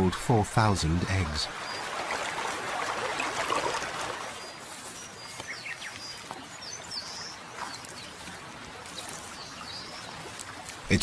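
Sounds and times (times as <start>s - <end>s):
flowing river water: 0.0s - 11.0s
small birds chirping and whistling: 4.4s - 8.3s, 8.9s - 10.2s.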